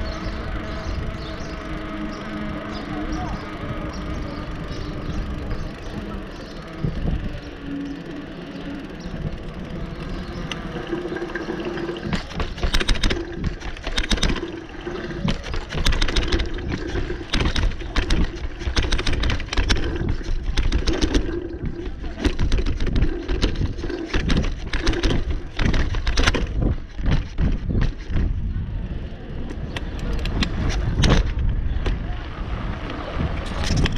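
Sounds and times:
wheels clattering over stone paving: 0.0s - 28.5s, 29.4s - 33.9s
wind buffeting microphone: 0.0s - 33.9s
sharp knocks and rattles: 10.3s - 28.4s, 29.8s - 32.0s, 33.5s - 33.9s.

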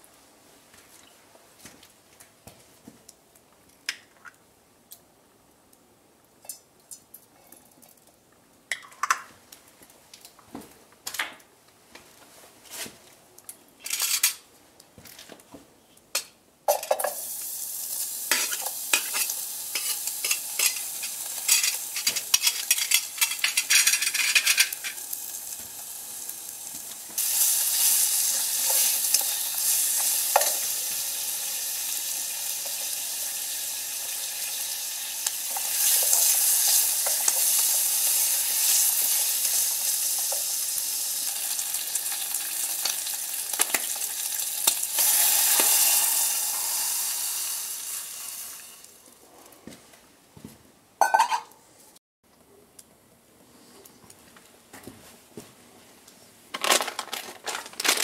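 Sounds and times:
wood fire crackling and snapping: 9.5s - 16.4s, 17.4s - 45.7s, 56.6s - 58.0s
hiss of burning flames: 17.1s - 23.2s, 24.7s - 43.8s.

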